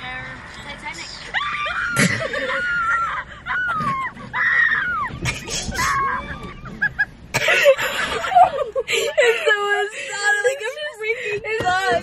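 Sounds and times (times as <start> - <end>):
girls squealing and wailing: 1.3 - 7.1.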